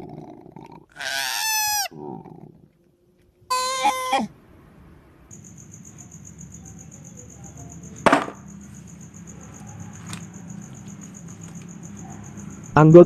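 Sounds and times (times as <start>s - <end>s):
crickets chirping: 0.0s - 13.0s
toys knocking in plastic basket: 8.0s - 8.4s.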